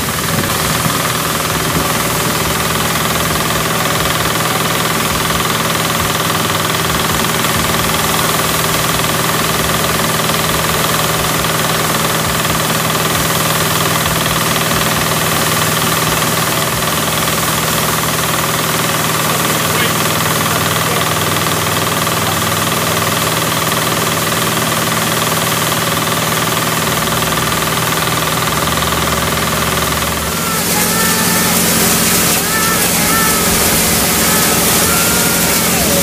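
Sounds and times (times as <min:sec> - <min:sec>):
tractor engine running under load: 0:00.0 - 0:36.0.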